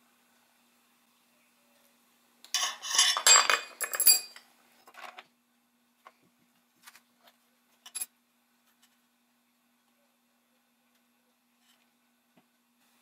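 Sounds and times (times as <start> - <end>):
small tools clattering on wood: 2.6 - 5.3.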